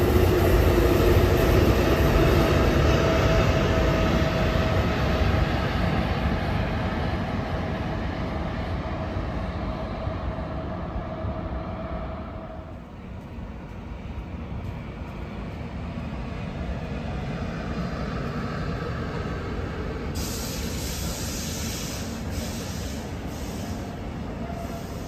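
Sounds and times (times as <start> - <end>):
train rumbling on rails: 0.0 - 25.0
loud hissing rush: 19.3 - 25.0.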